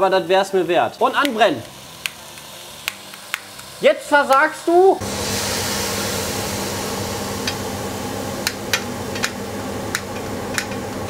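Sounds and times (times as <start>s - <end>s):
banana slices sizzling in a pan: 0.0s - 11.0s
lighter strike clicks: 1.2s - 4.4s.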